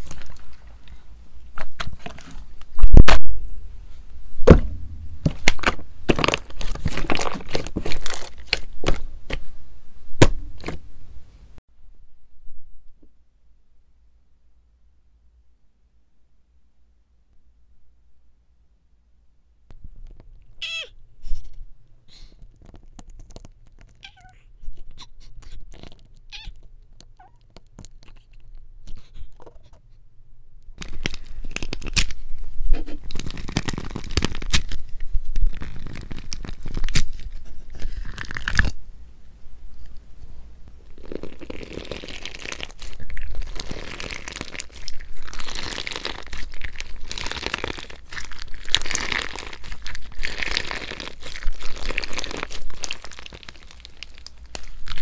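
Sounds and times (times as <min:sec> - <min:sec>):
slime crunching and crackling: 0:00.0 - 0:01.0, 0:05.2 - 0:09.4, 0:22.4 - 0:29.1, 0:30.8 - 0:38.8, 0:40.9 - 0:55.0.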